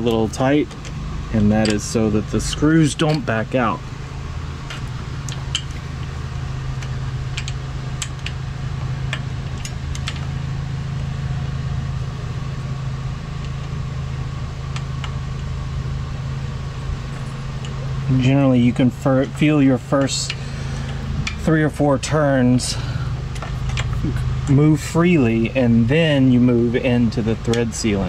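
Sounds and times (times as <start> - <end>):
low machine hum: 0.0 - 28.0
allen key clicks: 6.8 - 8.4.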